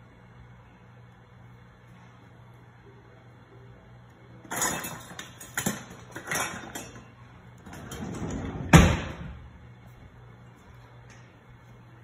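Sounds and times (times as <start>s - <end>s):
utensils and dishes clinking: 4.4s - 8.5s.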